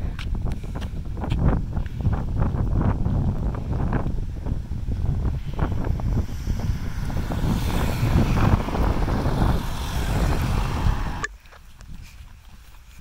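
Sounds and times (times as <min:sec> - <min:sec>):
wind buffeting microphone: 0:00.0 - 0:13.0
vehicles passing with tyre hiss: 0:03.4 - 0:11.4.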